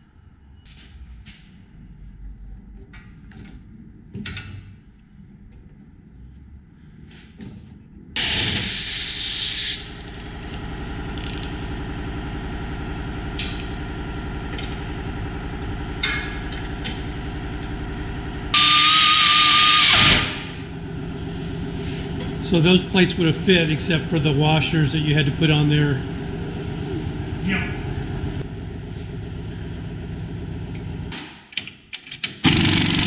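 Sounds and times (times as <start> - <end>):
pneumatic impact wrench: 8.2 - 10.3, 18.5 - 20.6, 32.3 - 33.0
low machine hum: 9.8 - 31.2.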